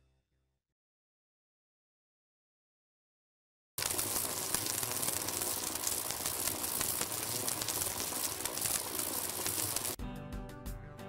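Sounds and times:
hissing crackling noise: 3.8 - 10.0.

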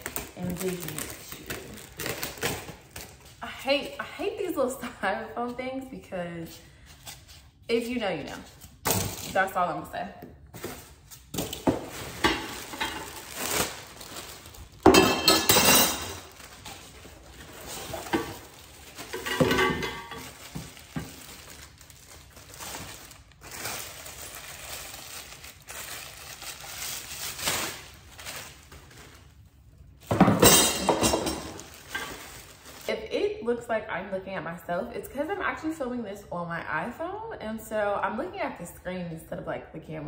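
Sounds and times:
plastic wrapping crinkling: 0.0 - 3.4, 10.4 - 30.0, 30.8 - 33.1.

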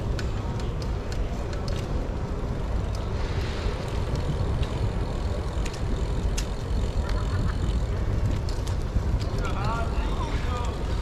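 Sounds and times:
steady low city rumble: 0.0 - 11.0
small clicks: 5.6 - 7.4.

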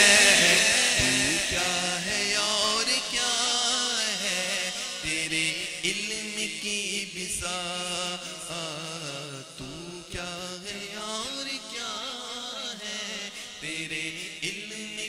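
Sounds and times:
men chanting devotional song: 0.0 - 15.0.

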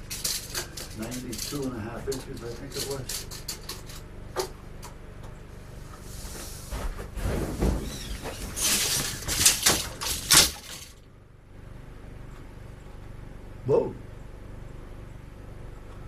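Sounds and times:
steel tape measure rattling: 0.0 - 4.1, 8.0 - 11.0
footsteps: 5.9 - 10.0.

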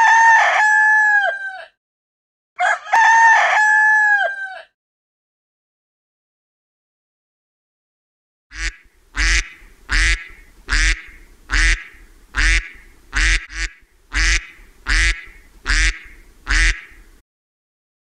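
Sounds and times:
duck quacking: 8.5 - 17.1.

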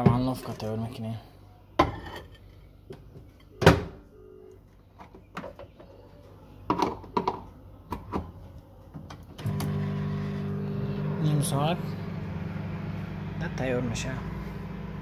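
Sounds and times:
microwave oven humming: 9.3 - 15.0.

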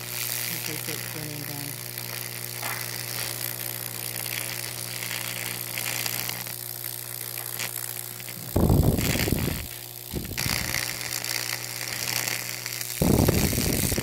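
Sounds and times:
electric arc crackling and sizzling: 0.0 - 14.0
electrical hum: 0.0 - 14.0.

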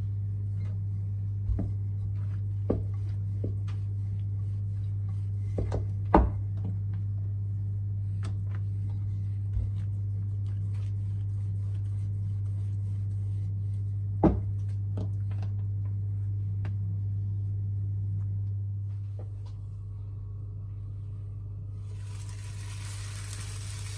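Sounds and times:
steady low hum: 0.0 - 23.9
rolling pin rolling dough: 1.5 - 6.3, 8.6 - 14.8.

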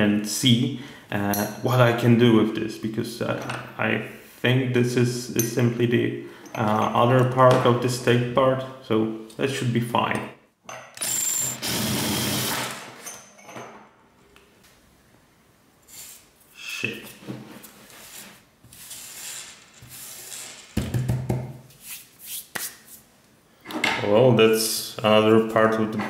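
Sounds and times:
electric drill boring metal: 11.0 - 12.8
handling and scraping noises: 17.0 - 20.8.

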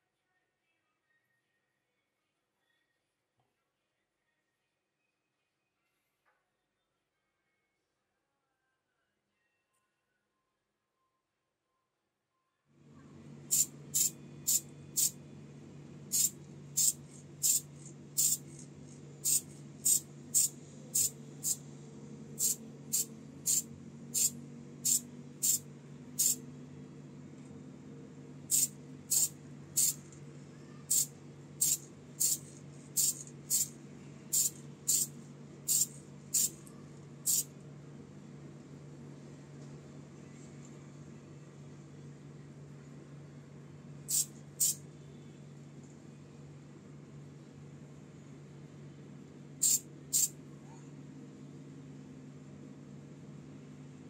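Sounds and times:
steady low hum: 12.8 - 54.0
aerosol can spraying in short bursts: 13.5 - 15.2, 16.1 - 18.6, 19.2 - 21.6, 22.4 - 23.6, 24.2 - 25.6, 26.2 - 26.4, 28.5 - 30.0, 30.9 - 33.7, 34.3 - 35.1, 35.7 - 36.6, 37.2 - 37.5, 44.1 - 44.8, 49.6 - 50.3.

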